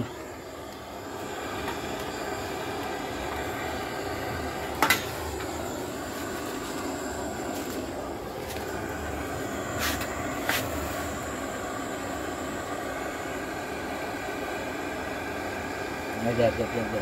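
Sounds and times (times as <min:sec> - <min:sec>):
gas torch hissing: 0:00.0 - 0:17.0.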